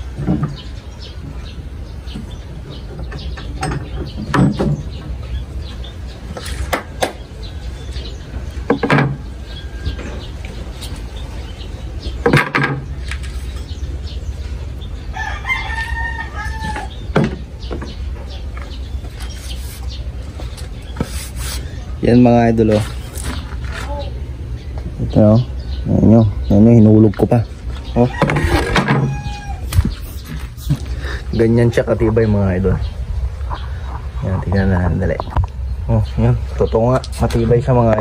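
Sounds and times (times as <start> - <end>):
pipe clamps knocking and clacking: 3.0 - 4.9
rooster crowing: 15.1 - 17.0, 28.0 - 29.8.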